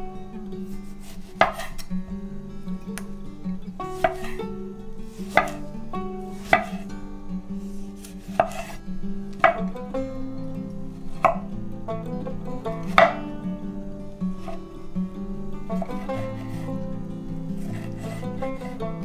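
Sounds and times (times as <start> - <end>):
soft plucked-string music: 0.0 - 19.0
knife knocking on wooden board: 6.5 - 6.8.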